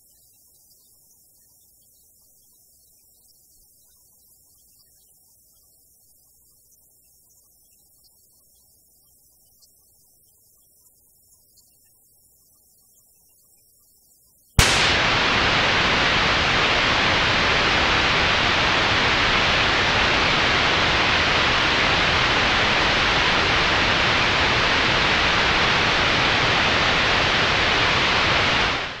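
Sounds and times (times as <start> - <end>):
radio static hiss: 14.6 - 29.0.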